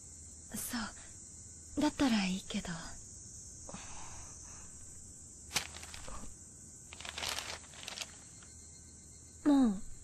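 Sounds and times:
insects chirring: 0:00.0 - 0:10.0
soft rustles: 0:05.5 - 0:06.3, 0:06.9 - 0:08.5.

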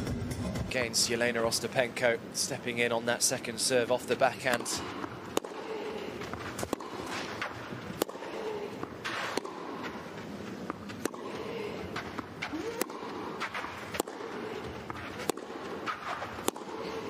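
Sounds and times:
indoor crowd hum: 0:00.0 - 0:03.0, 0:03.6 - 0:17.0
tennis ball hit by racket: 0:04.5 - 0:10.0, 0:10.6 - 0:17.0.

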